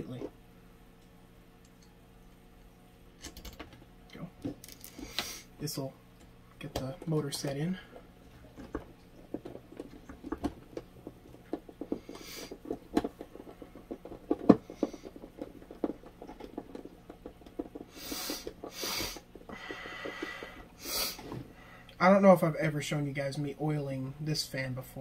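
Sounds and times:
faint steady hum: 0.0 - 25.0
light clicks and knocks on fan motor: 6.2 - 22.0.

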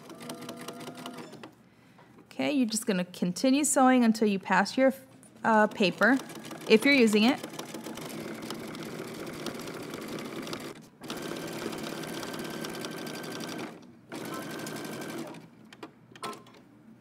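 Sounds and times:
sewing machine stitching: 0.0 - 1.5, 5.7 - 15.5.

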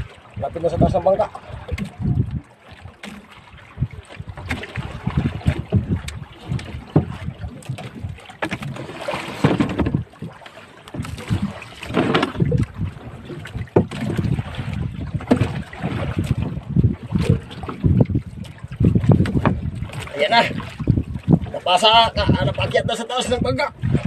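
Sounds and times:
water lapping against a hull: 0.0 - 24.0
wind buffeting the microphone: 0.0 - 24.0
knocks and thuds on board: 5.5 - 7.2, 9.3 - 10.0.

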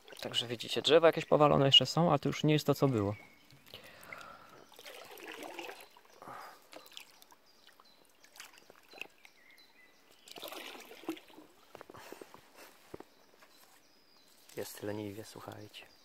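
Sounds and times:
river water trickling and lapping: 0.0 - 1.0, 2.9 - 12.6.

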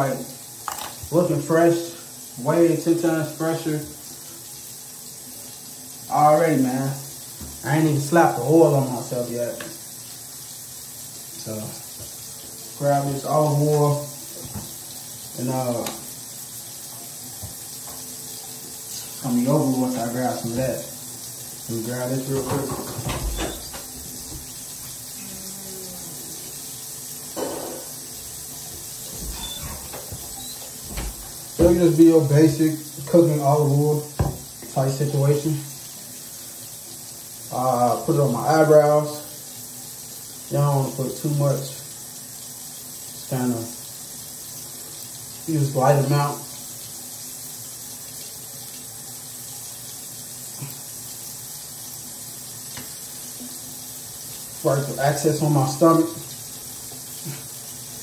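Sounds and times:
faucet running into sink: 0.0 - 58.0.

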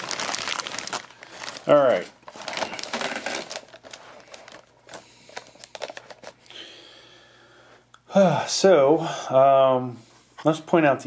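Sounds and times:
plastic wrapping crinkling: 0.0 - 6.5.

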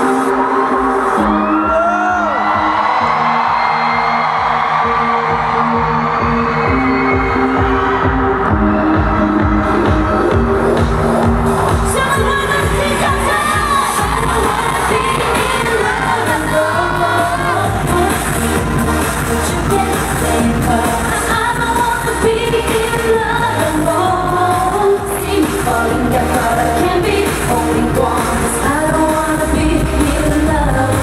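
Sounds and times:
pop backing track: 0.0 - 31.0
woman singing into microphone: 11.9 - 31.0.

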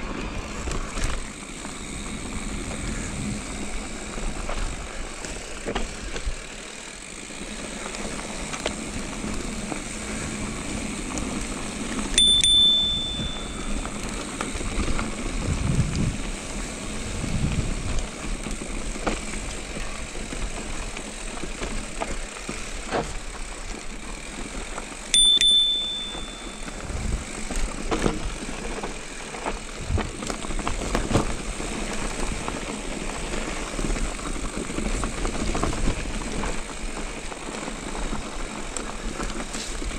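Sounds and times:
wind and tyre noise: 0.0 - 39.9
bicycle bell ding: 12.1 - 14.2, 25.1 - 26.9.

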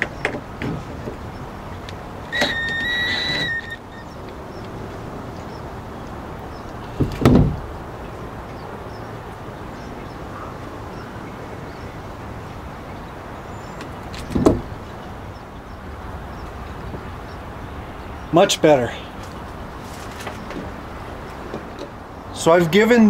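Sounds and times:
short thumps: 7.0 - 7.7.

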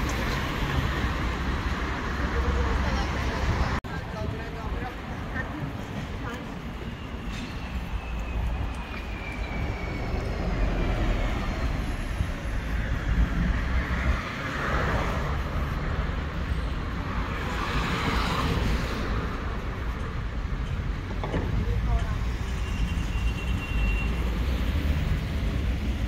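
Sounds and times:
rumble of street traffic: 0.0 - 26.0.

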